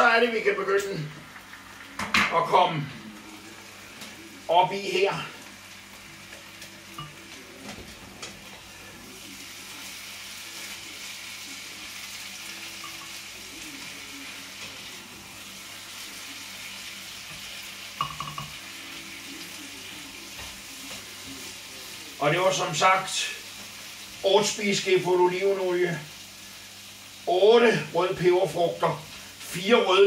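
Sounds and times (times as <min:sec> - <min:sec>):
vegetables sizzling in frying pan: 0:00.0 - 0:30.0
spoon knocking pan and jar: 0:18.0 - 0:18.6.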